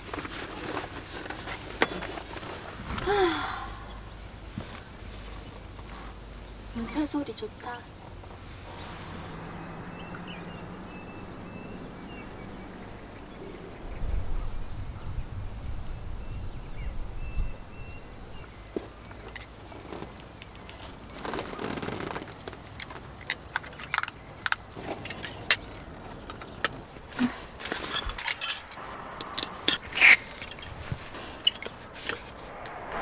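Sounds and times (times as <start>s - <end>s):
rustling: 0.0s - 3.1s, 24.7s - 33.0s
low rumble: 8.5s - 18.4s, 32.2s - 33.0s.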